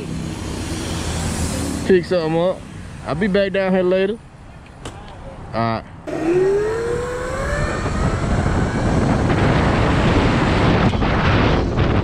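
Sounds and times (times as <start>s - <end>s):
electric motor whine: 6.1s - 10.8s
wind buffeting microphone: 6.1s - 12.0s.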